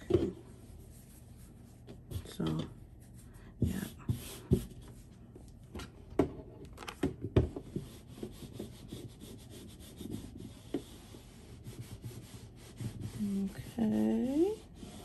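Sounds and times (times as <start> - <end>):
heat press rubbing on fabric: 7.8 - 15.0.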